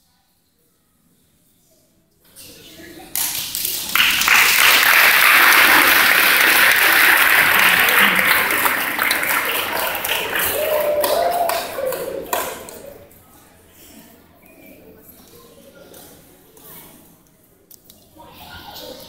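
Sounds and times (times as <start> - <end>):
audience applauding: 3.4 - 13.0.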